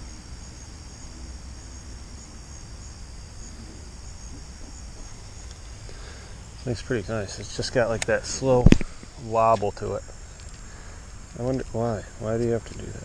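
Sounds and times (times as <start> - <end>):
insects trilling: 0.0 - 13.0.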